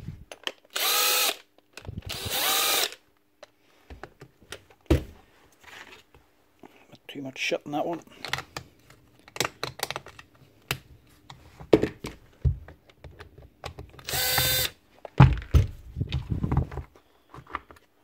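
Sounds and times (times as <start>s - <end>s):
small electric motor whirring: 0.8s - 1.4s, 2.0s - 3.0s, 14.0s - 14.7s.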